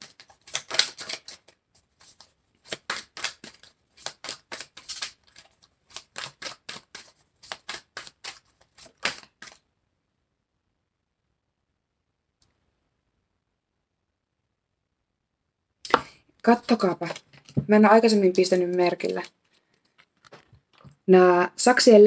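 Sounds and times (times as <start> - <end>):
playing cards being shuffled: 0.0 - 9.6, 15.9 - 21.0.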